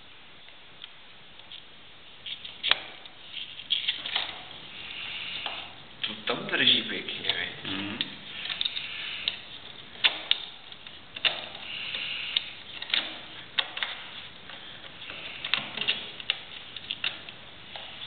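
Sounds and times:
screwdriver scraping: 8.3 - 14.3.

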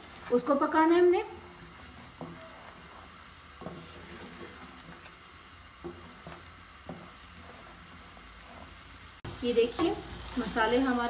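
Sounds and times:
paste sizzling in ghee: 0.0 - 11.0.

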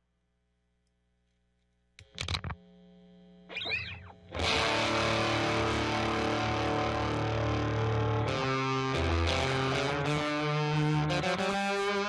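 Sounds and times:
fuzz-distorted guitar chord: 2.6 - 12.0.

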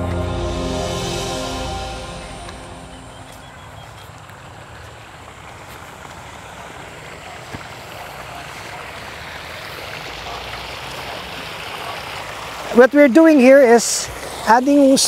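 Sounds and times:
water gushing from a hose: 4.2 - 15.0.

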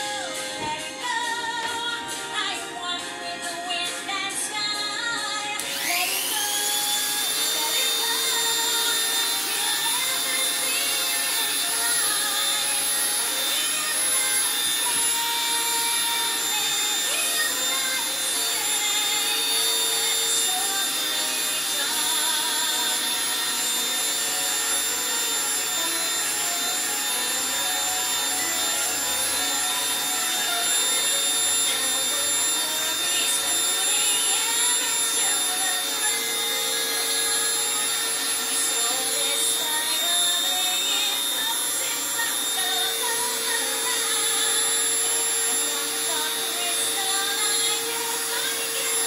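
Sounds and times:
rotary tool drilling glass: 5.6 - 49.0.

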